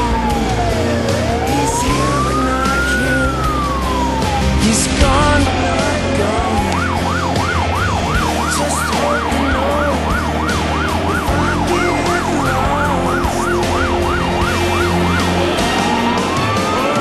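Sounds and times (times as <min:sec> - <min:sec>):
fire engine siren: 0:00.0 - 0:17.0
truck engine running: 0:00.0 - 0:17.0.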